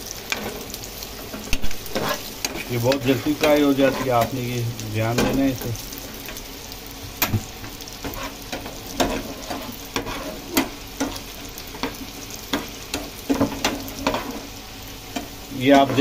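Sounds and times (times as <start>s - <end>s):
raisins sizzling in oil: 0.0s - 16.0s
metal spoon scraping a pan: 1.3s - 4.4s, 8.0s - 14.5s, 15.1s - 16.0s.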